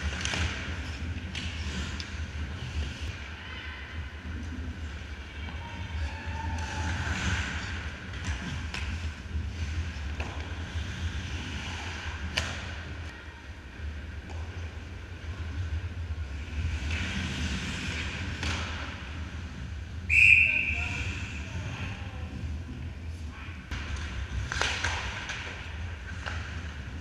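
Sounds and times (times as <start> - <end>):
skates scraping on ice: 0.0 - 3.4, 4.3 - 13.0, 15.4 - 19.7
referee's whistle blast: 20.1 - 20.8
stick hitting puck: 23.7 - 26.5.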